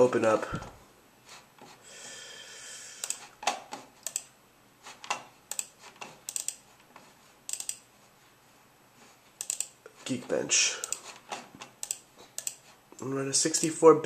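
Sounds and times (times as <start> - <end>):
mouse and keyboard clicks: 3.0 - 4.3, 5.0 - 6.6, 7.5 - 7.8, 9.4 - 9.8, 10.8 - 12.6.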